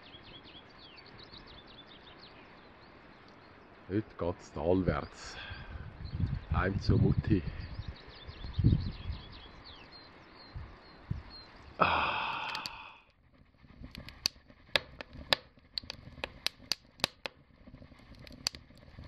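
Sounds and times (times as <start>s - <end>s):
small birds chirping: 0.0s - 19.0s
logs crackling in a wood stove: 11.1s - 19.0s.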